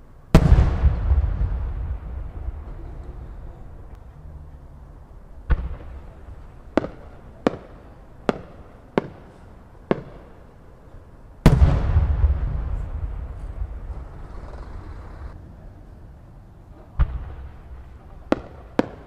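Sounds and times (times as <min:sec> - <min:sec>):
fireworks bangs: 0:00.3 - 0:10.6, 0:11.4 - 0:15.4, 0:16.8 - 0:19.0
aerial shell booming: 0:00.4 - 0:03.9, 0:11.4 - 0:15.3.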